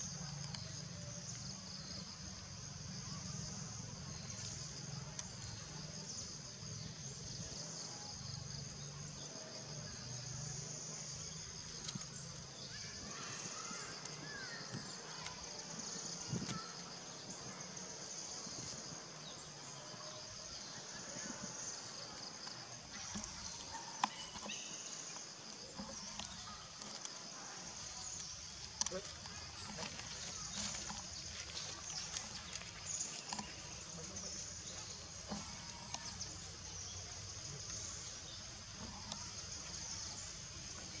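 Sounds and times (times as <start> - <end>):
high-pitched insect chorus: 0.0 - 41.0
faint clicks and rustles: 21.3 - 41.0.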